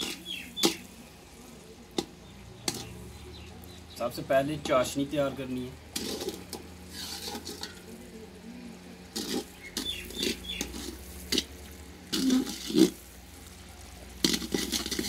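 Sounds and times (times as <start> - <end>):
metal spoon scraping a pot: 0.0 - 0.9, 2.0 - 3.0, 5.8 - 8.0, 9.0 - 11.5, 12.1 - 13.1, 14.1 - 15.0.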